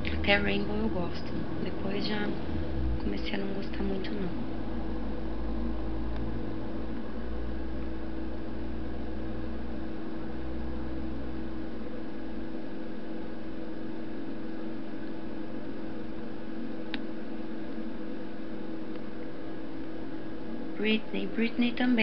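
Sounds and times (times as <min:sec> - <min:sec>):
low rumble: 0:00.0 - 0:07.8
background hum and hiss: 0:00.0 - 0:22.0.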